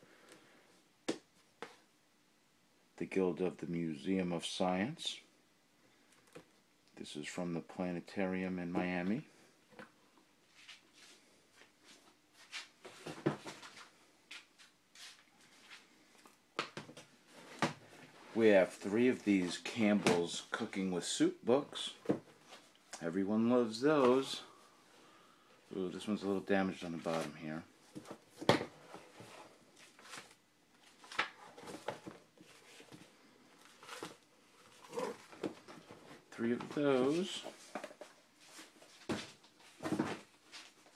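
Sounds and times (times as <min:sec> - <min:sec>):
book rustling and knocking: 0:27.9 - 0:40.8.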